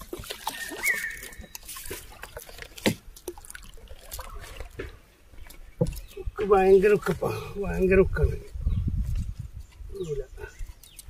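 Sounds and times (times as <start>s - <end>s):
water dripping and trickling: 0.0s - 7.5s.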